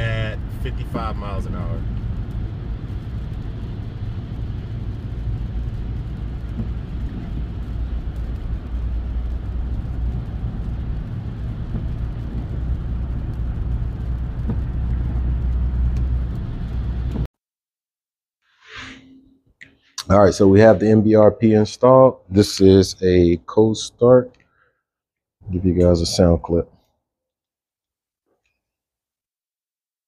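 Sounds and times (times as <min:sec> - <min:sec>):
low exhaust drone: 0:00.0 - 0:17.3
road and tyre noise: 0:00.0 - 0:17.3.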